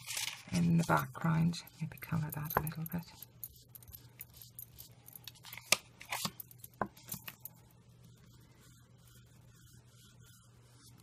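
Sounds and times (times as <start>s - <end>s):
sponge dabbing on paper: 7.0s - 11.0s.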